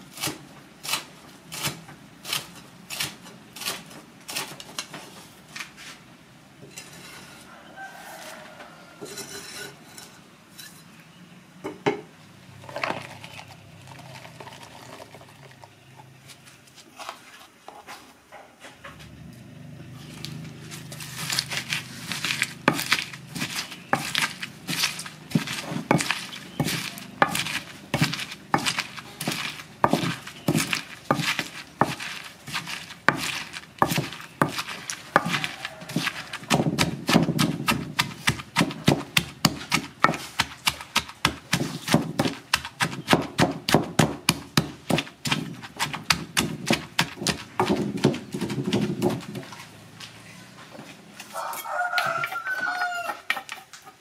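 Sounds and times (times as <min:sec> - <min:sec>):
wooden pestle pounding in stone mortar: 0:21.2 - 0:49.6.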